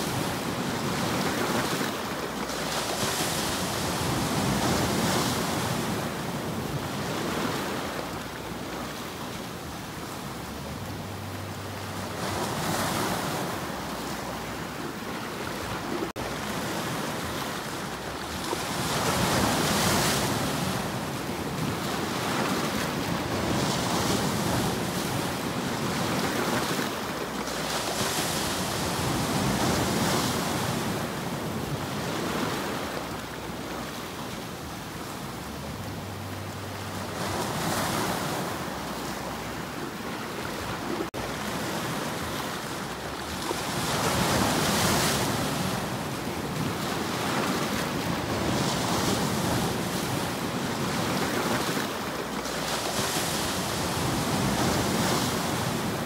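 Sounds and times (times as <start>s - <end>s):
waves breaking over rocks: 0.0s - 56.0s.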